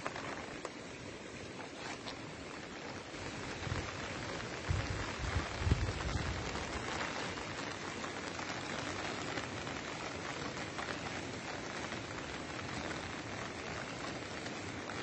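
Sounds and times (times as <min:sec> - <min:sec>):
low rumble on microphone: 0:03.3 - 0:07.0.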